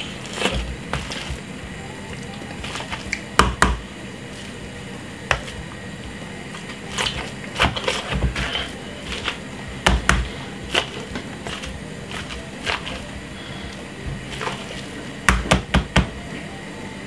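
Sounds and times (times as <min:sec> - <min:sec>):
potato squishing: 0:00.0 - 0:15.8
potato masher thumping bowl: 0:07.0 - 0:13.0.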